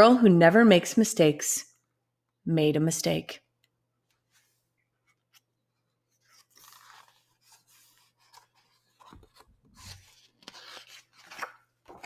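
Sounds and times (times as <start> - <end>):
paper page rustling: 4.2 - 12.0.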